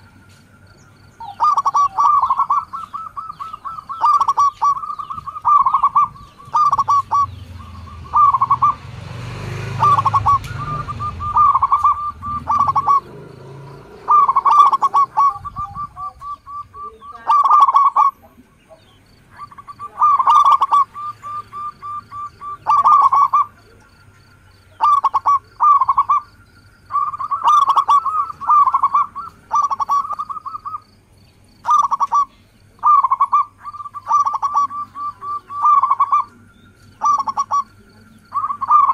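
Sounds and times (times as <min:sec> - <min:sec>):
doves cooing: 0:00.0 - 0:38.9.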